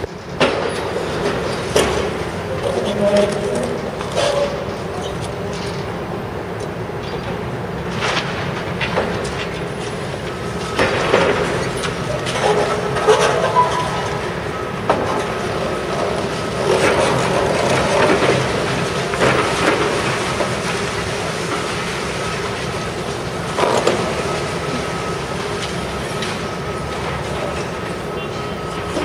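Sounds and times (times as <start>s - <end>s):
excavator rumble: 0.0s - 29.0s
concrete cracking and crunching: 7.9s - 28.0s.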